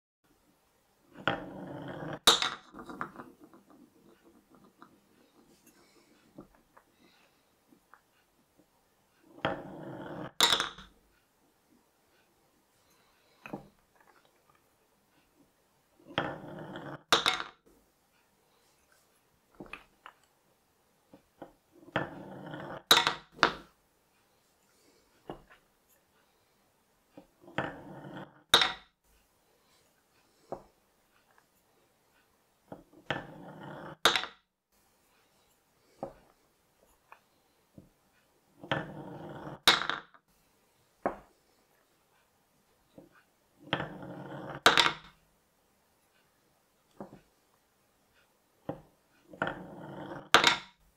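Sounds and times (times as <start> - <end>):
balls rolling down wooden chute: 1.1 - 7.2, 9.2 - 11.0, 16.0 - 17.7, 21.2 - 23.8, 27.2 - 28.9, 32.7 - 34.4, 38.6 - 40.2, 42.9 - 45.2, 48.7 - 50.8
ball clacking into wooden bowl: 1.2 - 5.4, 9.4 - 10.9, 16.1 - 17.6, 21.9 - 23.7, 27.5 - 28.8, 33.0 - 34.4, 38.6 - 40.2, 43.6 - 45.2, 48.7 - 50.8.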